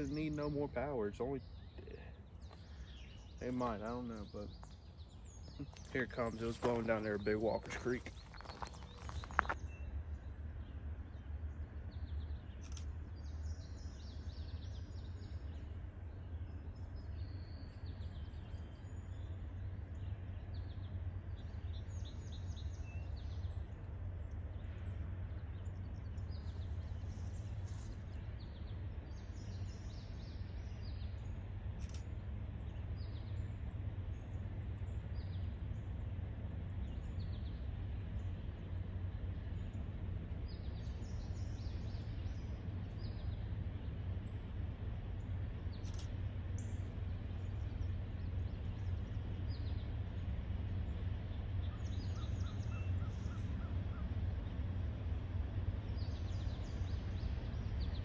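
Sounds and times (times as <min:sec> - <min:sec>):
distant train rumble: 0:00.0 - 0:58.0
small birds chirping: 0:00.0 - 0:58.0.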